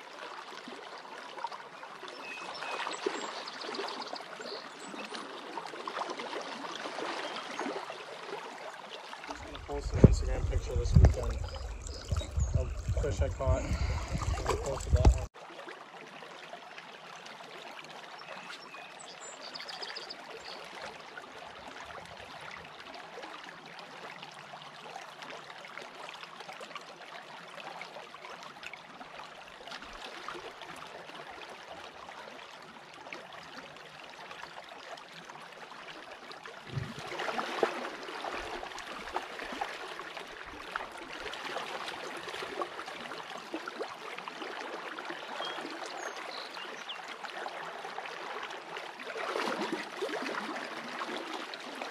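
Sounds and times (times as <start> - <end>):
creek babbling over gravel: 3.3 - 15.3, 33.6 - 51.9
water splashing: 5.2 - 15.3, 36.6 - 46.6, 47.3 - 51.9.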